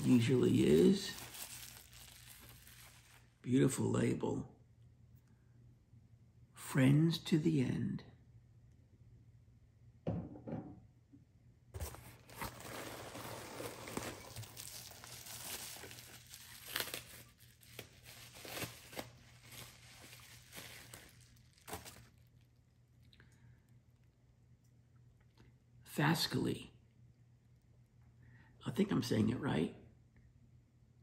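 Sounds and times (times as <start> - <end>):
packing material crinkling: 0.0 - 3.4, 11.8 - 22.6.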